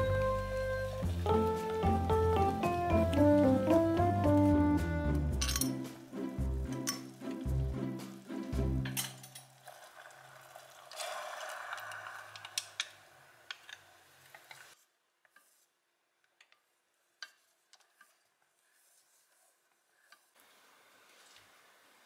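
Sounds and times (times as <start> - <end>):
background music with bass line: 0.0 - 9.0
liquid swishing in a pot: 9.5 - 14.8.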